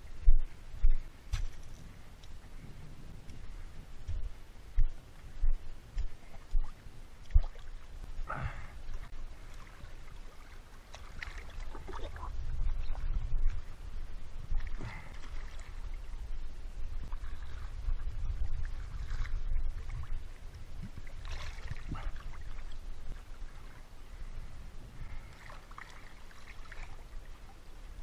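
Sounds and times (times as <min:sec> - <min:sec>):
sea water sloshing and splashing: 0:06.0 - 0:24.2, 0:25.0 - 0:27.7.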